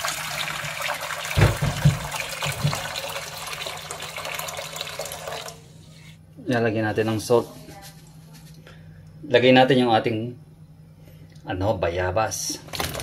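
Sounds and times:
water pouring into a metal wok: 0:00.0 - 0:05.6.

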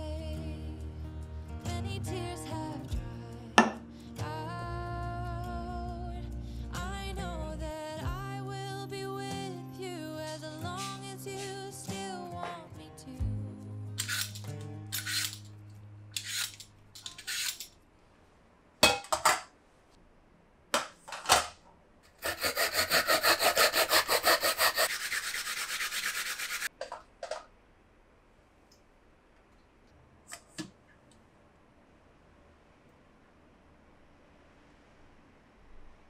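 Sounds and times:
vegetable peeler scraping: 0:10.8 - 0:11.5, 0:14.0 - 0:15.5, 0:16.2 - 0:17.7, 0:22.2 - 0:26.7
grating on a metal grater: 0:22.2 - 0:26.7.

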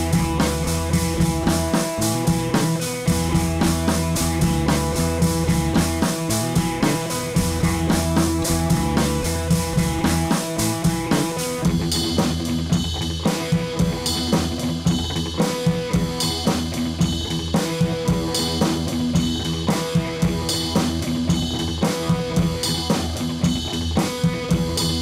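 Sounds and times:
drum kit and guitar music: 0:00.0 - 0:25.0.

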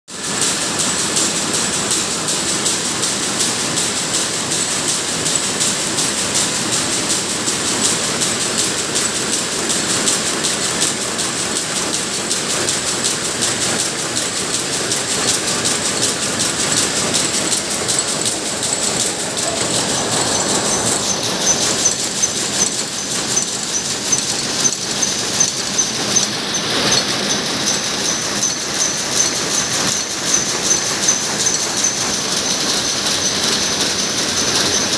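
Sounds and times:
loom mechanical clatter: 0:00.1 - 0:34.9.

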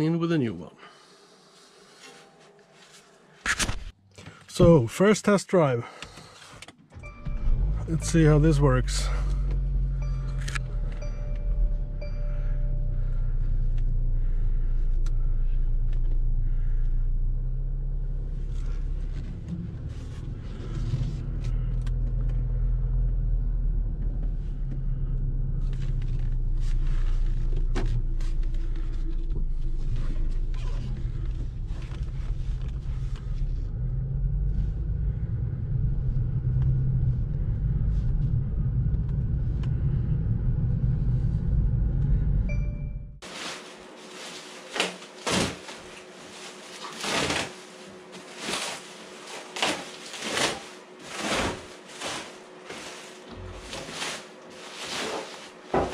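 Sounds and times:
car engine running at low speed: 0:06.9 - 0:43.3, 0:52.9 - 0:54.1
road noise: 0:07.3 - 0:43.0.

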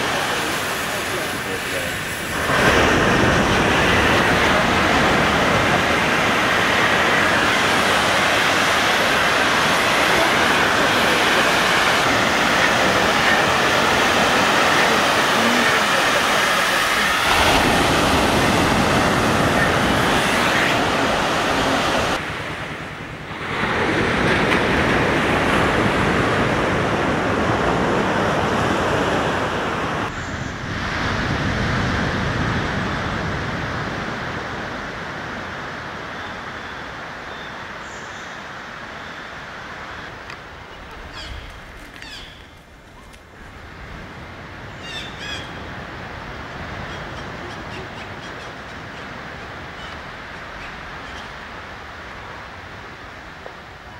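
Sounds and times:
surf breaking on beach: 0:00.0 - 0:37.8.

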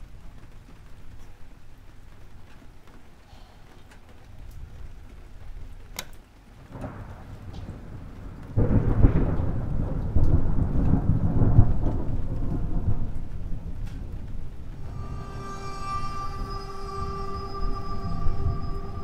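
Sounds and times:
steady rain: 0:00.0 - 0:19.0
loud rolling thunder clap: 0:06.7 - 0:19.0.

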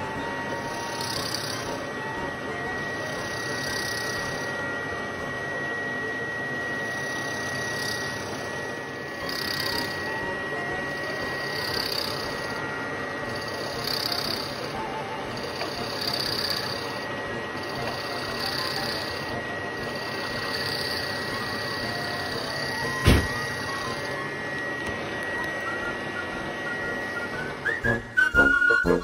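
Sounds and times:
drill press motor whine: 0:00.0 - 0:29.0
drill bit boring into wood: 0:00.5 - 0:01.8, 0:02.8 - 0:04.6, 0:06.6 - 0:24.2.

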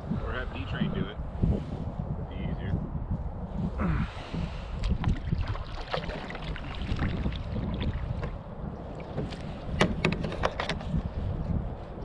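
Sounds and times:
wind rumbling on microphone: 0:00.0 - 0:12.0
light knocks and clicks: 0:09.1 - 0:10.9.

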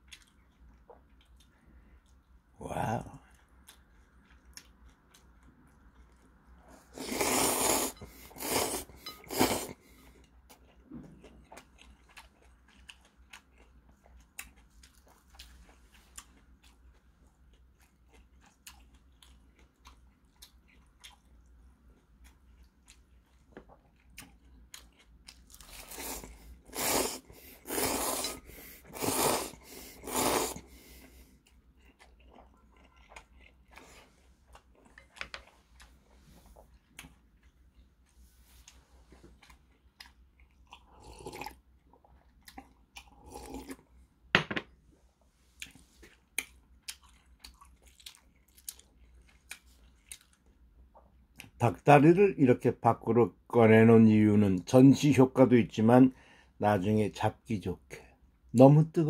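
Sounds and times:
quiet chewing: 0:00.0 - 0:44.2, 0:44.9 - 0:51.6
slurping noodles: 0:06.8 - 0:09.8, 0:25.7 - 0:31.2.

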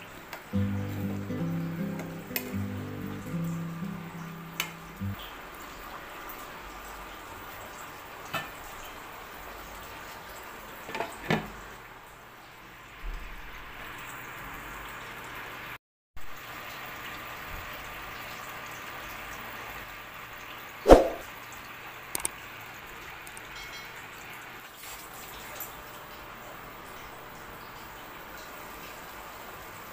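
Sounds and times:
sauce simmering in a pan: 0:00.2 - 0:10.8, 0:11.6 - 0:29.9
sharp knock: 0:20.9 - 0:21.2.

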